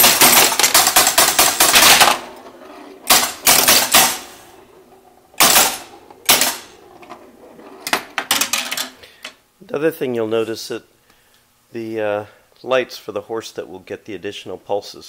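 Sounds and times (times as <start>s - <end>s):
pinball machine relays clicking: 0.0s - 9.0s.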